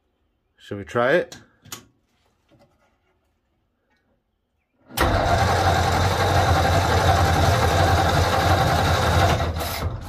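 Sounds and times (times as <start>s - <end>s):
starter motor cranking engine: 4.9s - 10.0s.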